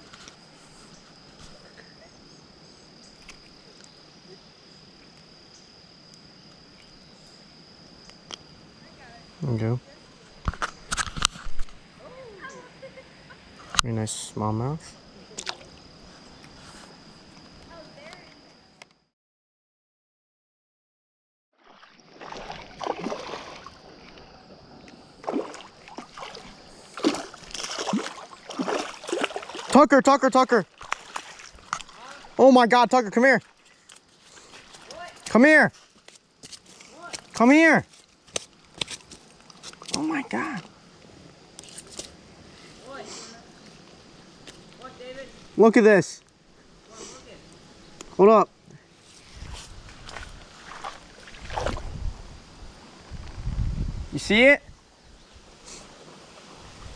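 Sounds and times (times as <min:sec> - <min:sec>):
insects trilling: 0:00.0 - 0:19.1, 0:21.6 - 0:56.9
small ticks: 0:06.1 - 0:07.0
fish splashing in water: 0:21.6 - 0:24.0, 0:25.2 - 0:29.8, 0:30.7 - 0:32.4.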